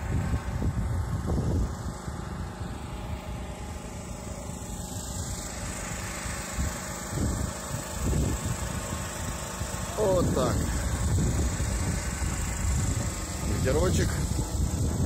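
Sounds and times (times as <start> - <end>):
wind buffeting microphone: 0.0 - 2.8, 5.7 - 15.0
generator running: 0.0 - 15.0.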